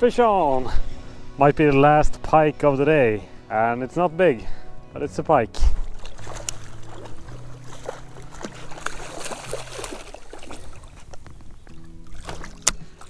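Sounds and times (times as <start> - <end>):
water sloshing: 5.5 - 13.0
fish thrashing and splashing: 5.8 - 13.0.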